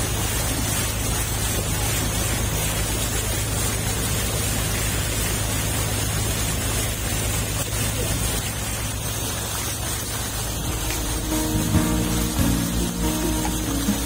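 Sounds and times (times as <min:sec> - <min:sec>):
water rushing and splashing: 0:00.0 - 0:14.0
motorboat engine humming: 0:05.9 - 0:14.0.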